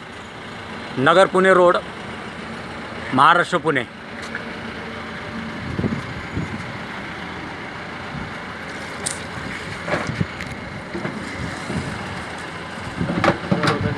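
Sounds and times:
vehicle engine rumbling: 0:00.0 - 0:13.9
fuel nozzle and hose clattering: 0:08.6 - 0:13.9.

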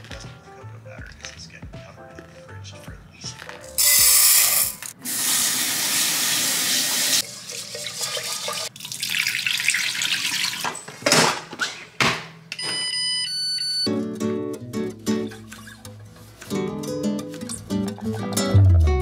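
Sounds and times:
tap water running: 0:03.8 - 0:10.8.

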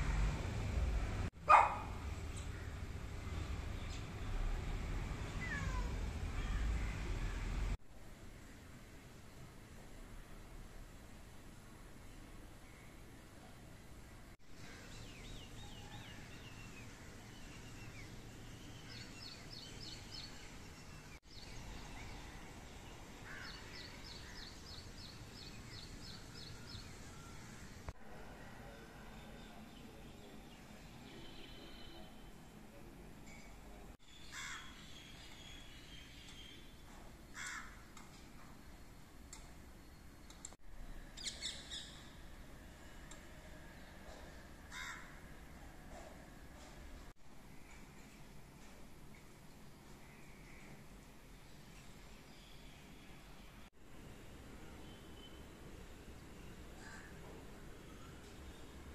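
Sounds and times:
faint crow cawing: 0:02.5 - 0:02.8, 0:23.2 - 0:24.5, 0:34.3 - 0:34.8, 0:37.3 - 0:37.9, 0:44.1 - 0:45.3, 0:56.8 - 0:57.4
songbird singing: 0:14.5 - 0:27.7, 0:33.3 - 0:37.5, 0:39.3 - 0:42.2.

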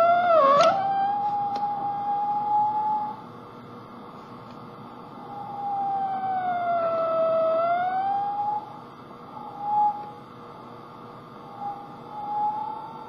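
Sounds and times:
held electronic tone: 0:00.0 - 0:03.2, 0:05.0 - 0:10.2, 0:11.3 - 0:13.0.

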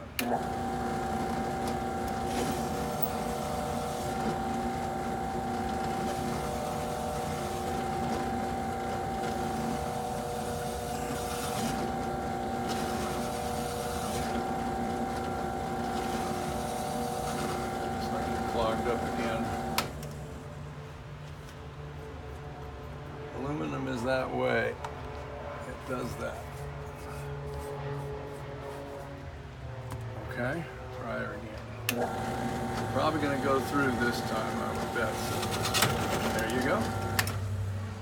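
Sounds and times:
drill press motor whine: 0:00.0 - 0:20.2, 0:31.9 - 0:37.6
hole saw cutting metal: 0:00.2 - 0:19.9, 0:31.9 - 0:37.4.

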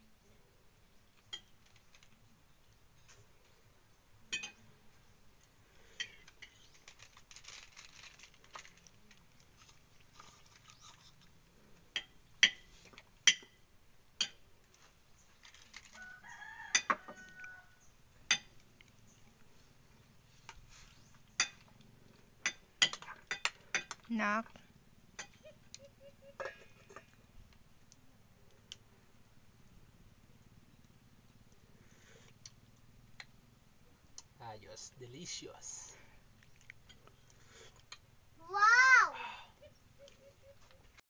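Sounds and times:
utensil clinking on cooking pot: 0:04.3 - 0:04.6, 0:14.2 - 0:14.4
rooster crowing: 0:15.9 - 0:17.9.

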